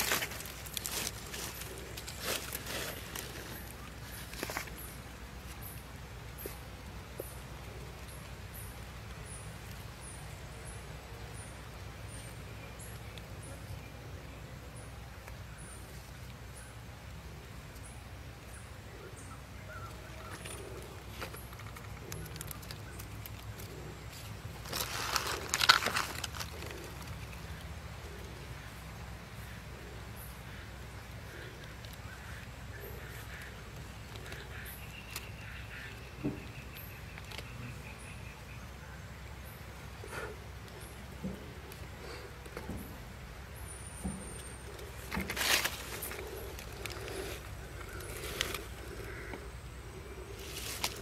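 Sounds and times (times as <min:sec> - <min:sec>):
dry leaves crackling and rustling: 0:00.0 - 0:05.7, 0:19.8 - 0:28.7, 0:44.6 - 0:51.0
outdoor ambience: 0:00.0 - 0:51.0.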